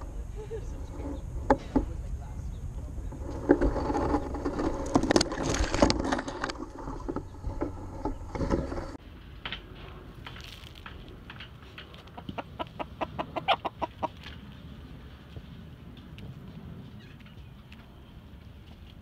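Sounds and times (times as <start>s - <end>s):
rustling among branches: 0.0s - 12.2s.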